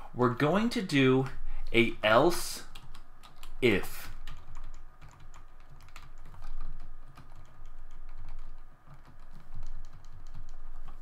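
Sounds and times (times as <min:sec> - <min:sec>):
typing on computer keyboard: 0:02.6 - 0:11.0.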